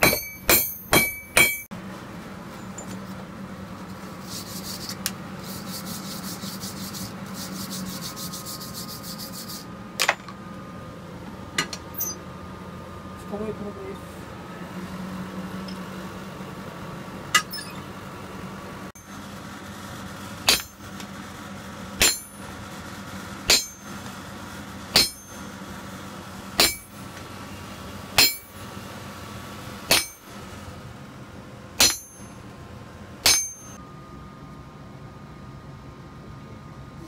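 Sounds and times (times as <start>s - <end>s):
hammer striking blade on anvil: 0.0s - 1.7s, 17.4s - 17.8s, 20.5s - 20.9s, 22.0s - 22.4s, 23.5s - 23.9s, 24.9s - 25.4s, 26.6s - 27.0s, 28.2s - 28.6s, 29.9s - 30.4s, 31.8s - 32.4s, 33.2s - 33.8s.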